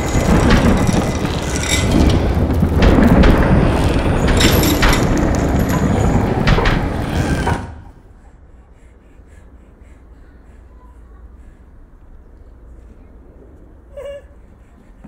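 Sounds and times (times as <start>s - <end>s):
rumbling clatter and knocks: 0.0s - 8.2s.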